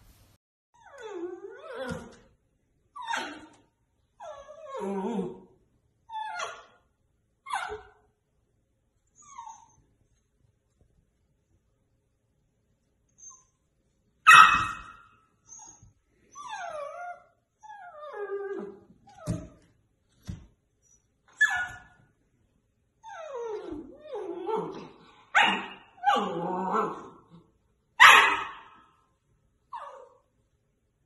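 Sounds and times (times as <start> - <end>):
puppy whining: 0.8 - 2.3, 2.9 - 6.9, 9.0 - 10.2, 13.1 - 19.7, 23.0 - 27.4, 29.7 - 30.3
puppy barking: 14.2 - 15.1, 25.3 - 26.3, 28.0 - 28.9.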